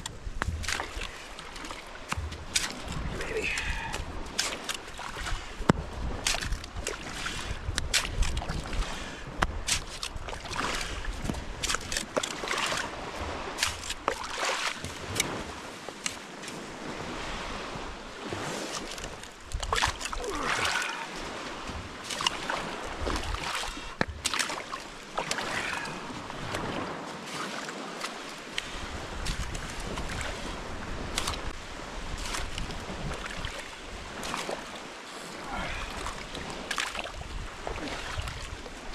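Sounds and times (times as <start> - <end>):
wind on microphone: 0.0 - 14.1, 28.6 - 34.4, 35.4 - 38.9
small waves on shore: 0.0 - 38.9.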